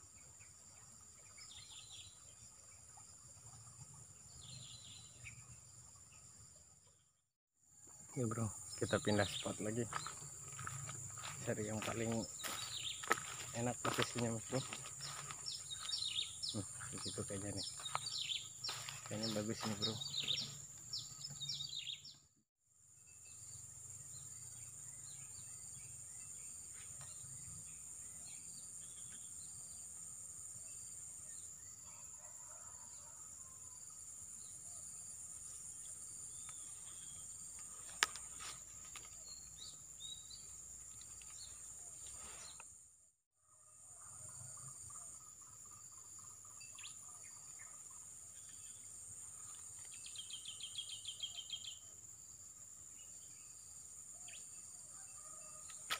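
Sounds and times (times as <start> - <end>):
insects droning: 7.7 - 22.1, 23.1 - 42.8, 43.5 - 55.9
bird chirps: 8.1 - 22.3, 45.0 - 52.0.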